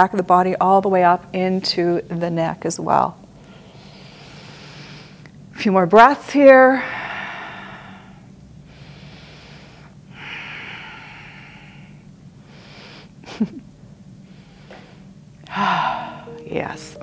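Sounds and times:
woman breathing slowly: 3.4s - 5.3s, 6.7s - 13.3s, 14.2s - 16.3s.

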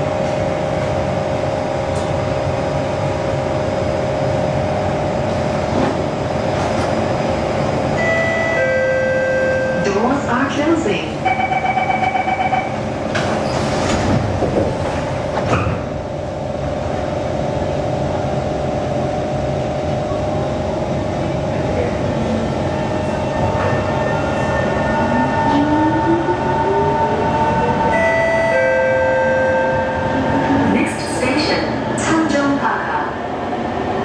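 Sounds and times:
door warning beeps: 11.2s - 12.8s
train doors knocking shut: 13.1s - 15.9s.

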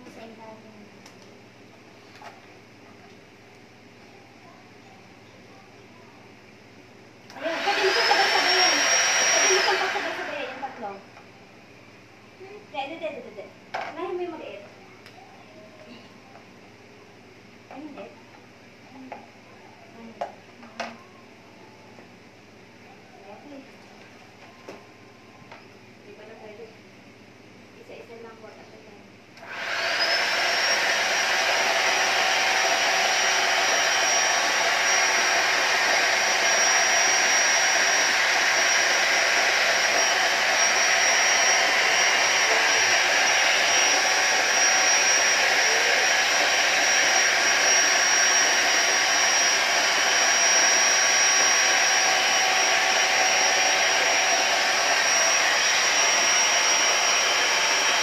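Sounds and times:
electric air pump running: 7.3s - 11.0s, 29.4s - 58.0s.

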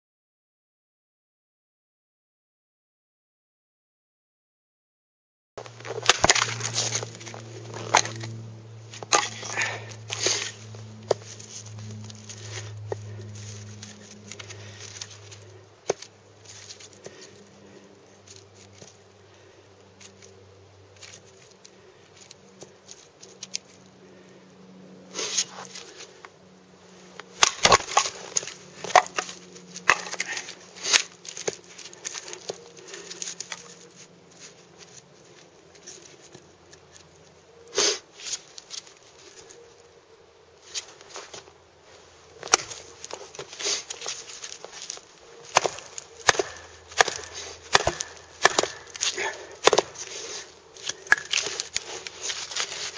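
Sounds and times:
clatter of split wood pieces: 5.6s - 8.4s, 9.0s - 17.4s, 27.2s - 35.0s, 42.4s - 52.9s
wood cracking as it splits: 5.6s - 17.5s, 27.2s - 35.0s, 42.4s - 52.9s
hatchet blade biting into wood: 5.8s - 8.4s, 9.0s - 15.2s, 27.2s - 32.6s, 42.4s - 52.9s.

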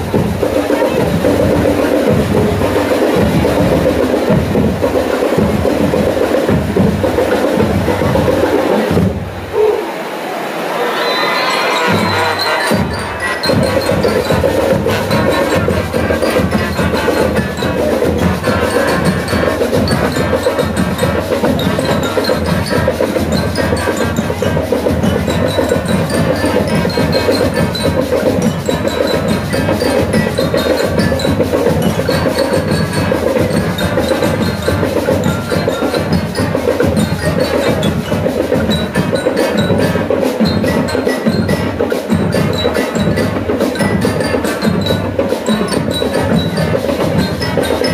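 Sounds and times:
marching drum beat: 0.0s - 9.5s, 11.8s - 47.9s
marching band playing: 0.0s - 47.9s
high ringing notes: 10.9s - 47.9s.

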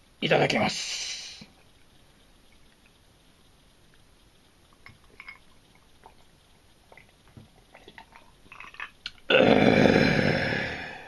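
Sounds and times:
person sipping and swallowing: 4.8s - 6.3s, 6.9s - 10.8s.

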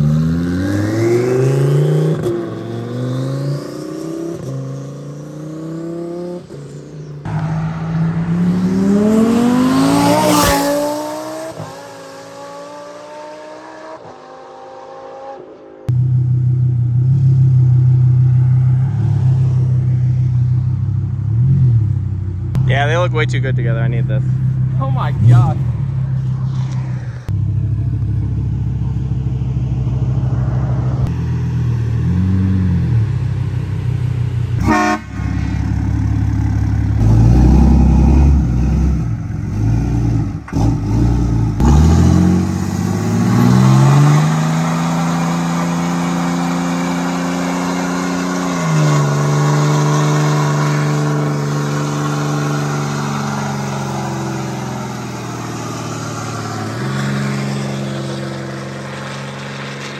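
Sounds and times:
truck engine revving: 7.2s - 11.8s, 34.6s - 59.9s.

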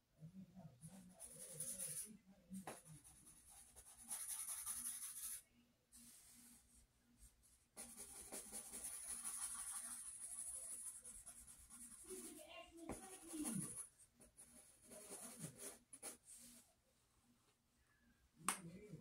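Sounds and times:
pen scratching on paper: 0.9s - 2.1s, 2.7s - 5.4s, 7.8s - 16.2s.

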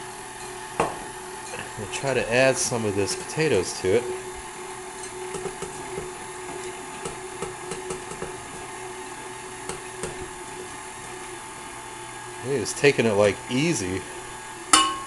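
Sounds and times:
stand mixer motor humming: 1.3s - 14.7s.

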